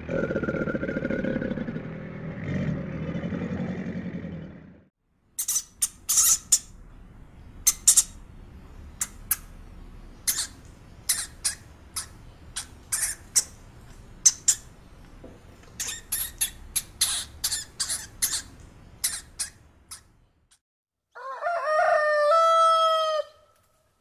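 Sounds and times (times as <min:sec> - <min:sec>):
hamsters squeaking: 0:05.4 - 0:06.7, 0:10.2 - 0:13.6, 0:14.2 - 0:14.7, 0:15.7 - 0:20.1.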